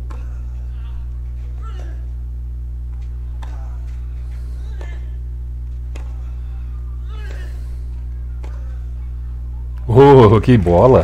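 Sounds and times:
player grunting: 0.0 - 2.1, 3.2 - 5.2, 6.0 - 7.8
low electrical hum: 0.0 - 11.0.

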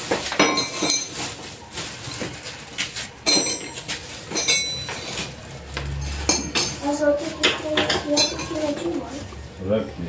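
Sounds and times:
metal tools clinking: 0.2 - 1.5, 3.2 - 8.8.

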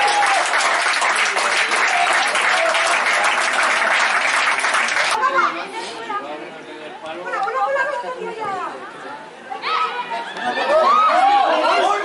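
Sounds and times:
crowd clapping and cheering: 0.0 - 5.2.

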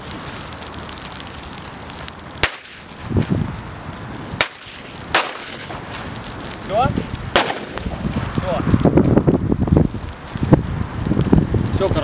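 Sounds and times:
bonfire crackling: 0.0 - 12.0
low rumble of flame: 0.0 - 12.0
sharp loud cracks: 2.3 - 3.0, 4.3 - 9.2.

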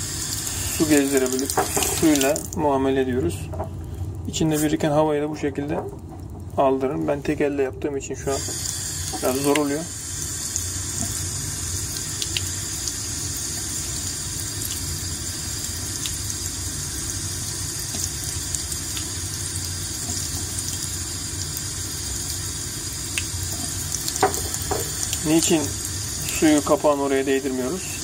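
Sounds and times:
tap water splashing into sink: 0.8 - 2.6, 8.4 - 9.9, 10.9 - 11.2, 23.1 - 26.8.

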